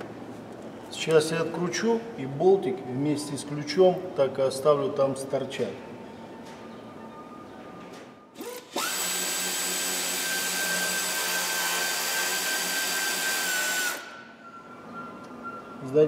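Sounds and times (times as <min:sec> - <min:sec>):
power ratchet hiss: 0:08.4 - 0:14.2
power ratchet whining: 0:08.4 - 0:14.2.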